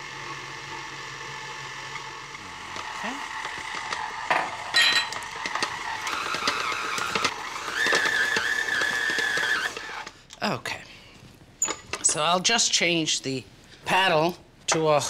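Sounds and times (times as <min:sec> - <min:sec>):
stand mixer motor whine: 0:00.0 - 0:10.1.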